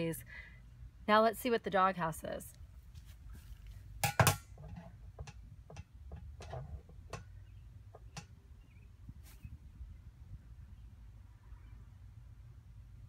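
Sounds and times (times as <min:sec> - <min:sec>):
low steady rumble: 0:00.0 - 0:13.0
handling clicks and knocks: 0:04.0 - 0:07.3.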